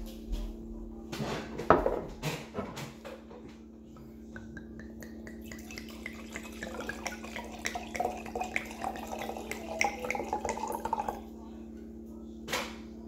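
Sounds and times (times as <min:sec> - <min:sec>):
wine pouring into a glass: 0:04.8 - 0:11.3.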